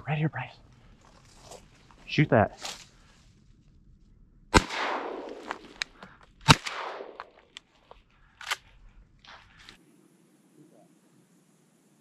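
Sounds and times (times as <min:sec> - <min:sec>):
shotgun blasts with echo: 0:04.5 - 0:05.8, 0:06.4 - 0:07.3.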